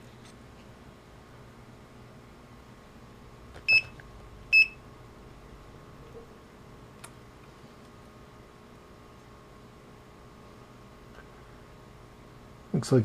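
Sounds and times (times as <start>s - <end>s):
multimeter electronic beeps: 3.7s - 4.8s.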